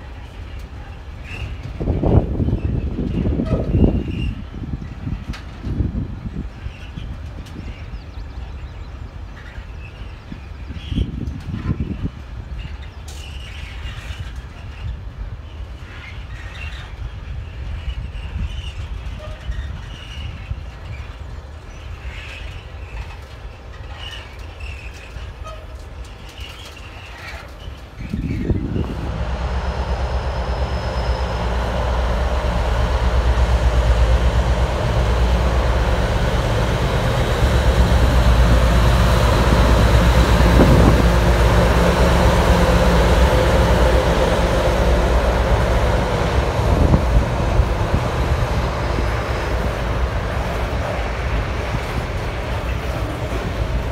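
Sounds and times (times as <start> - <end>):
diesel locomotive engine drone: 0.0 - 53.9
train wheels rumbling: 0.0 - 53.9.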